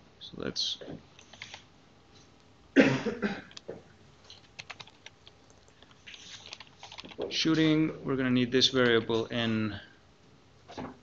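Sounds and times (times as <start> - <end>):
person coughing: 2.8 - 3.6
keyboard key clicks: 4.3 - 7.3.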